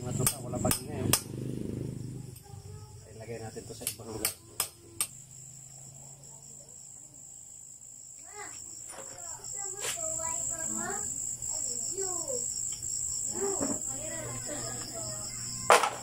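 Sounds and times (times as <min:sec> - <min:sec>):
crickets chirping: 0:00.0 - 0:16.0
voices talking: 0:00.0 - 0:16.0.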